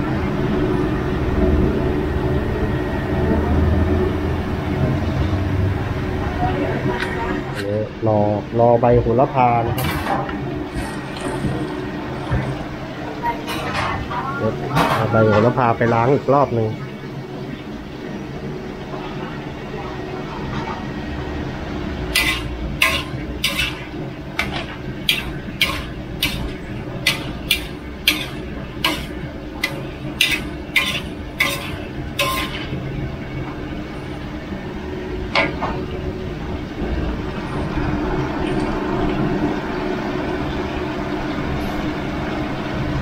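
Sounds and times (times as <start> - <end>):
metal spatula clanging on wok: 22.2 - 32.8.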